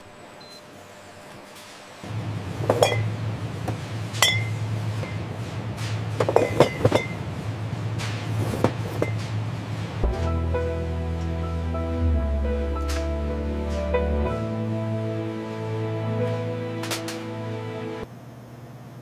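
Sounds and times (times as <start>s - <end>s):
steady low hum: 0.0s - 18.4s
glass bottles clinking: 2.7s - 3.2s, 4.2s - 5.2s, 6.2s - 7.2s, 8.6s - 9.3s.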